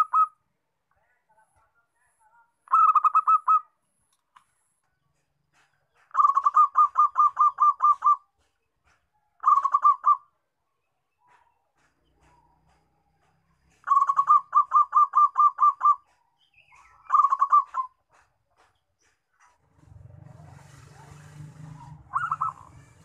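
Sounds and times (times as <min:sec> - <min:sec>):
dove cooing: 0:02.7 - 0:03.7, 0:06.1 - 0:08.3, 0:09.4 - 0:10.3, 0:13.8 - 0:16.2, 0:17.0 - 0:18.3, 0:20.4 - 0:23.0.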